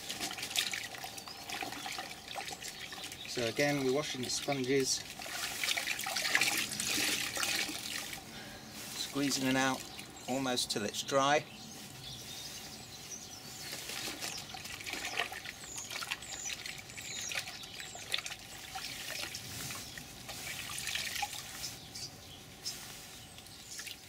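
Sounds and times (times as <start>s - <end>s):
water dripping: 0.0s - 8.3s, 13.7s - 21.6s
water splashing in a bucket: 0.0s - 8.3s, 13.7s - 21.6s.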